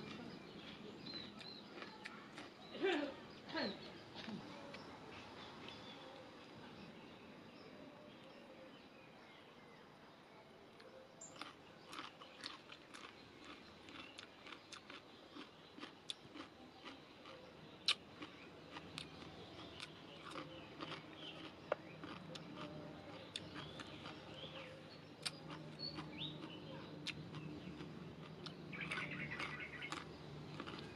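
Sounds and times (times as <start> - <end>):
person chewing crunchy food: 0.0 - 2.7, 11.2 - 30.9
loud crack of food: 11.3 - 24.2, 27.1 - 30.9.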